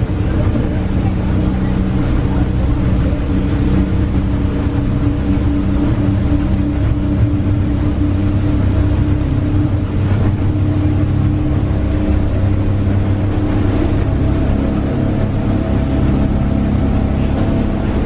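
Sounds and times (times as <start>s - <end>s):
boat engine droning: 0.0s - 18.0s
water rushing past hull: 0.0s - 18.0s.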